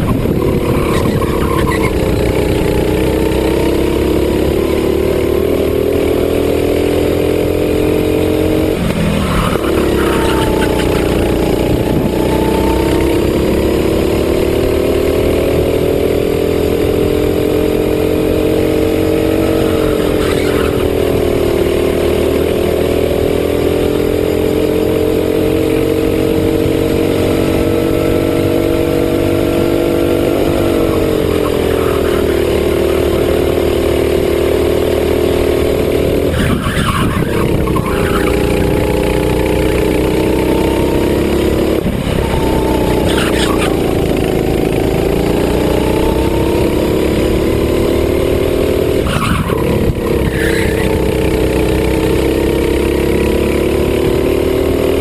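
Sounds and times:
kart engine: 0.0 - 55.0.

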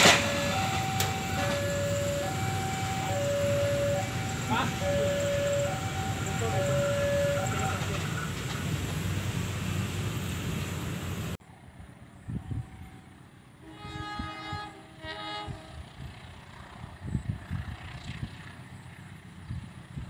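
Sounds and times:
locomotive horn blasts: 0.0 - 7.9, 13.6 - 16.2
loud rumbling noise: 0.0 - 11.4.

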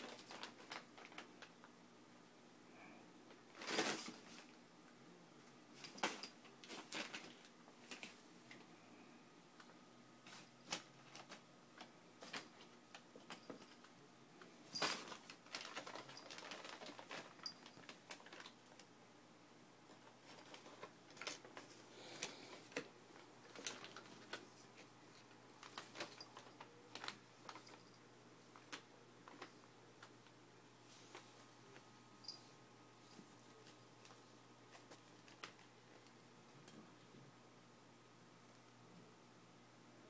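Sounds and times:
paper rustling and crinkling: 0.0 - 1.5, 3.5 - 4.5, 5.8 - 8.2, 10.2 - 13.8, 14.7 - 18.8, 19.9 - 30.2, 33.2 - 36.1.

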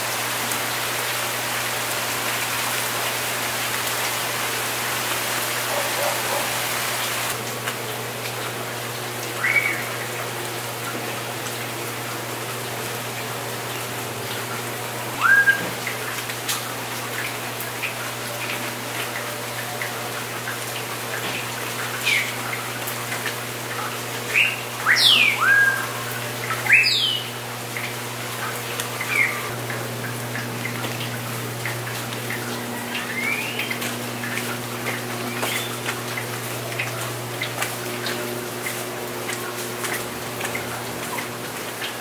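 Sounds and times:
steady hiss: 0.0 - 7.4
bird whistled calls: 9.4 - 10.0, 15.2 - 15.8, 24.3 - 27.3, 33.0 - 33.8, 35.4 - 35.8.

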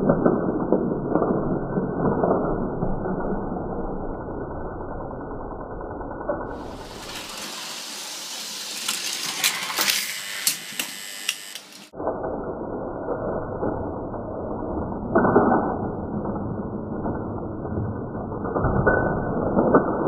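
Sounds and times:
toy train clattering on metal track: 6.5 - 11.9.

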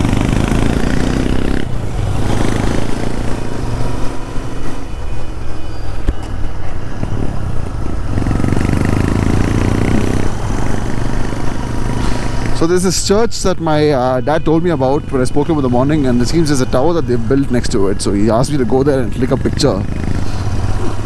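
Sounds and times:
motorcycle engine running: 0.0 - 4.4, 7.8 - 12.5.

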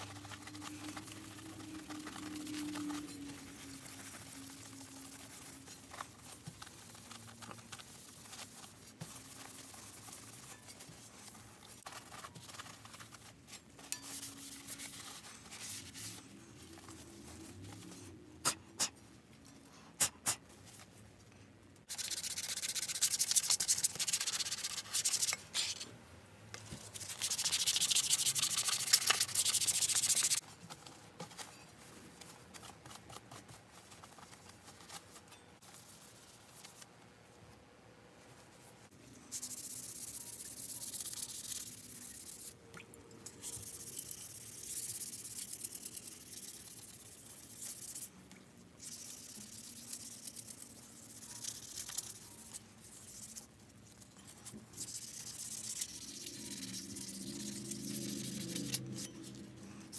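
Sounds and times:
cloth rag rubbing on sheet metal: 0.0 - 18.9.

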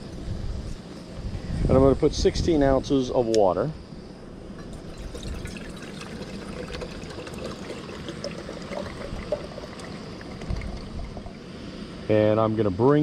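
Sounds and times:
water pouring into metal pot: 4.6 - 11.5.

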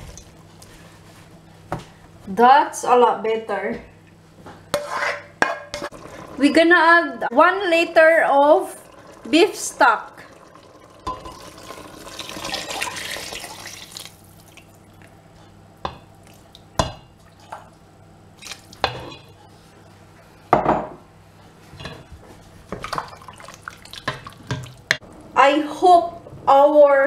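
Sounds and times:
liquid pouring into pot: 8.5 - 14.8.

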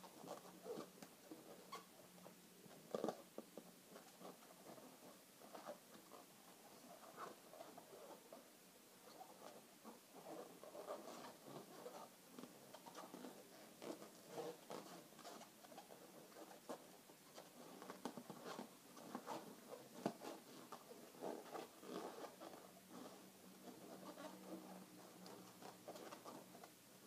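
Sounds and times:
balloons squeaking: 1.5 - 1.9.

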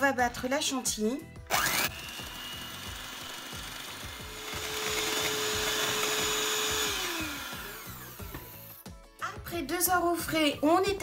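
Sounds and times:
electric hand mixer whining: 1.5 - 8.8.

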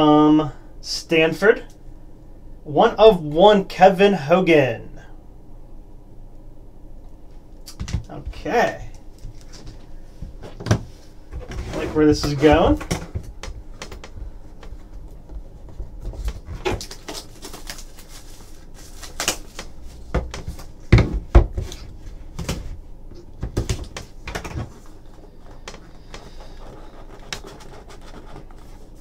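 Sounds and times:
hands handling cards and box: 15.6 - 20.8.

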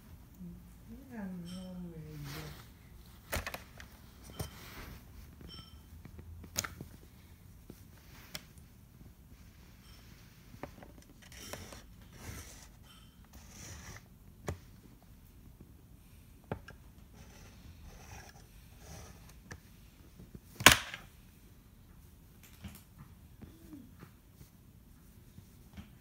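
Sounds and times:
stylus scratching drawing board: 17.1 - 19.3.

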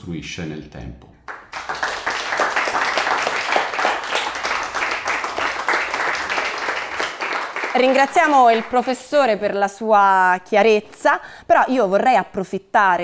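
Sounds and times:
audience applauding: 1.3 - 8.9.

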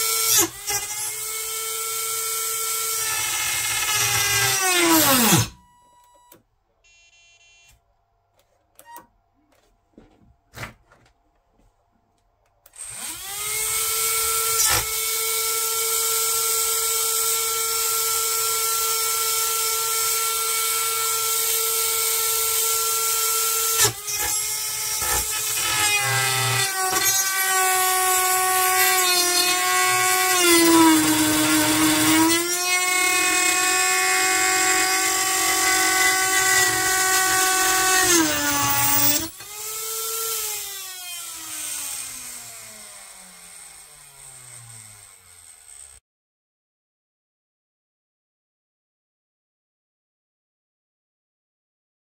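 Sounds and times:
small electric motor whining: 23.7 - 46.0.

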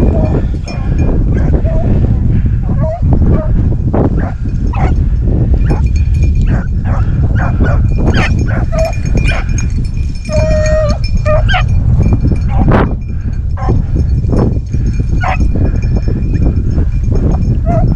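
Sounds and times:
hounds baying and yelping: 0.0 - 5.0, 5.6 - 11.7, 15.2 - 15.9, 17.6 - 17.9.

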